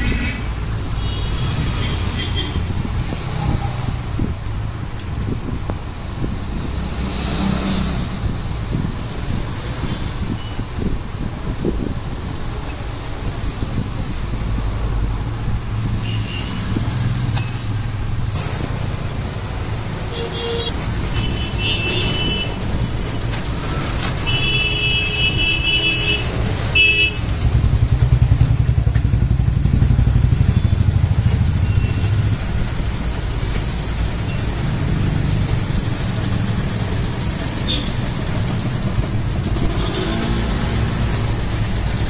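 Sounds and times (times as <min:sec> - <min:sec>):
vehicle horns honking: 0:20.1 - 0:22.6, 0:24.2 - 0:27.3
motorcycle engine running: 0:27.2 - 0:34.0.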